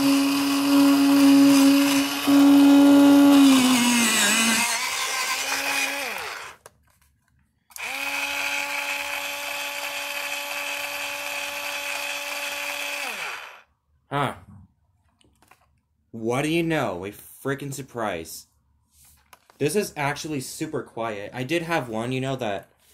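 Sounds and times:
electric pencil sharpener humming: 0.0 - 6.6, 7.7 - 13.7.

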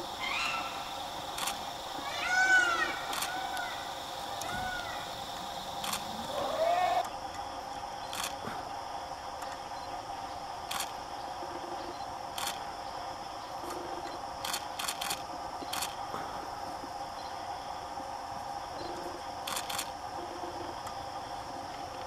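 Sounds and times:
steady background drone: 0.0 - 22.0
camera shutter clicks: 5.8 - 6.1, 19.5 - 19.9.

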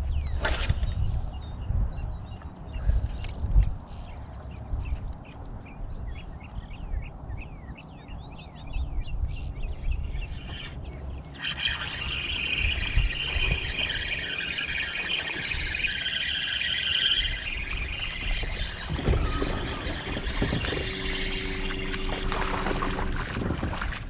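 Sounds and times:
small birds chirping: 0.0 - 23.2
high-pitched whirring: 10.0 - 24.0
low rumble: 12.2 - 24.0.

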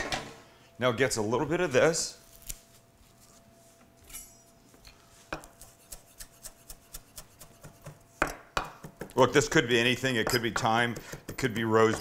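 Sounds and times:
knife chopping on wooden board: 5.3 - 9.2, 10.2 - 12.0.

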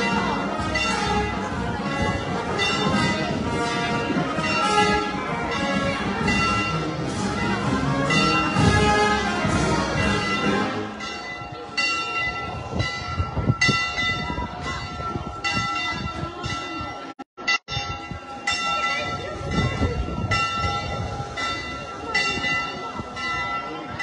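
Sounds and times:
band music: 0.0 - 11.2
church bells ringing: 0.0 - 24.0
crowd chatter: 0.0 - 24.0.

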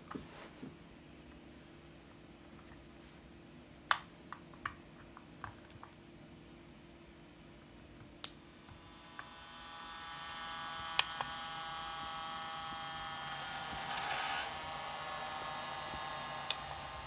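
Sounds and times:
battery charger humming and whining: 8.6 - 17.0.

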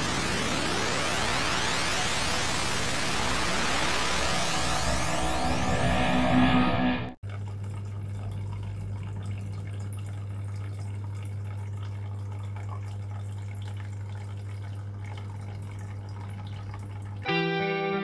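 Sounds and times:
low hum: 0.0 - 7.2
water trickling and dripping: 7.2 - 17.3.

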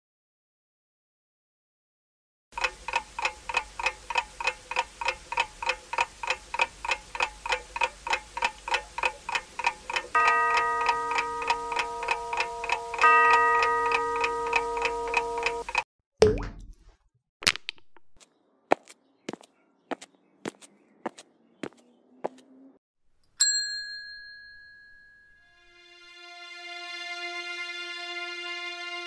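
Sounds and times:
clock ticking: 2.6 - 15.8
bell-like chime: 10.2 - 15.8, 23.4 - 25.6.

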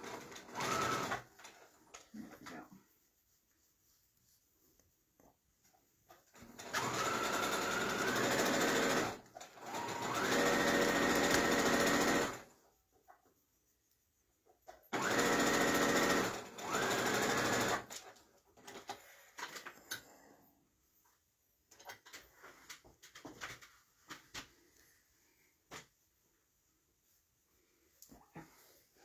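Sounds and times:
sewing machine motor whine: 0.0 - 1.3, 6.5 - 12.5, 14.9 - 18.0.

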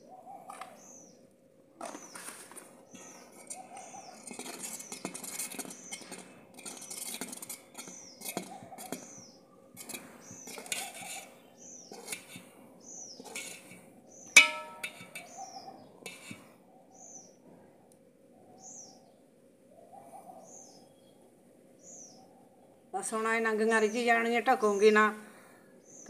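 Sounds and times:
ladle stirring and scraping pot: 1.8 - 16.5
bird chirping: 1.8 - 17.4, 18.5 - 19.2
ladle clinking on metal pot: 3.4 - 9.2, 13.2 - 13.8, 14.4 - 15.4, 16.1 - 16.4.

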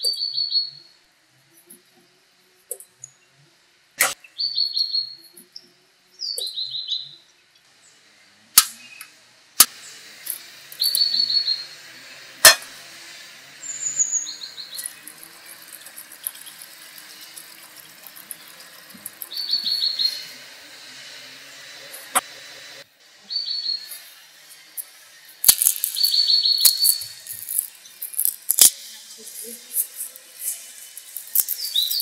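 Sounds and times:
songbird chirping: 0.0 - 1.0, 4.1 - 8.1, 10.7 - 12.4, 13.5 - 22.3, 23.2 - 32.0.

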